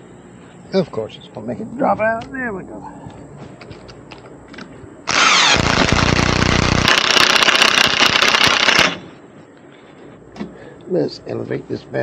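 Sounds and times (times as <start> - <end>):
motor running with rattle: 3.6 - 9.2.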